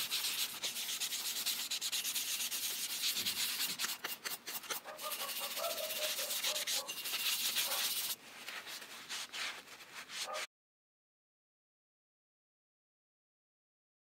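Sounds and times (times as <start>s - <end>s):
rubbing scratching on steel chisel: 0.0s - 10.5s.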